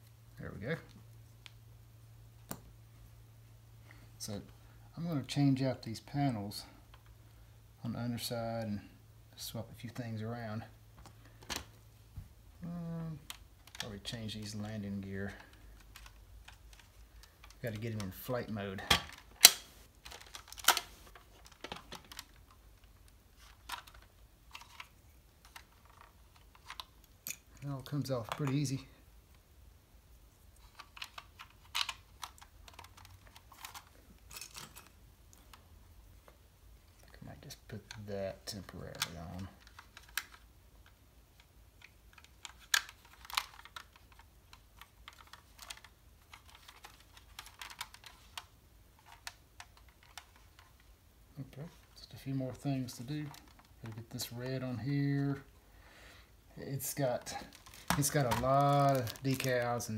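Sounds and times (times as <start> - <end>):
plastic model parts clicking: 23.5 - 28.7, 30.7 - 34.9, 38.9 - 50.9, 52.5 - 54.4, 57.0 - 59.7.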